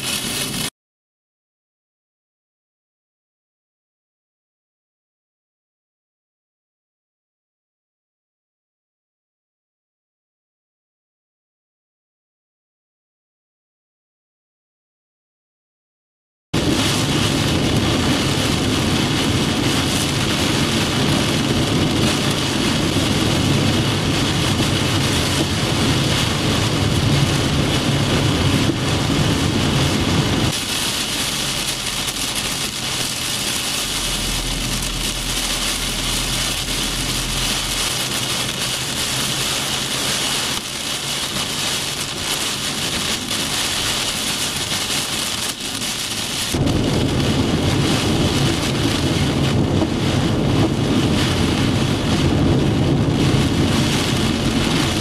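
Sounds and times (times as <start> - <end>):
engine and road rumble: 0.0 - 0.7, 16.6 - 55.0
heavy rain and wind on car: 0.0 - 0.7, 16.6 - 55.0.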